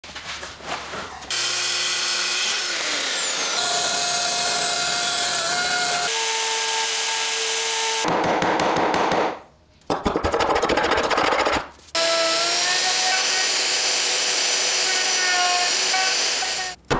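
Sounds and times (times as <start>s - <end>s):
electric router whining: 1.3s - 8.0s, 12.0s - 16.8s.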